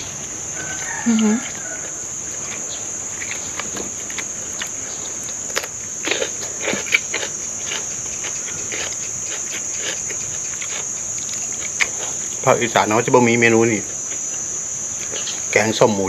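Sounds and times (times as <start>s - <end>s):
high-pitched insect drone: 0.0s - 16.0s
person chewing: 1.4s - 12.4s.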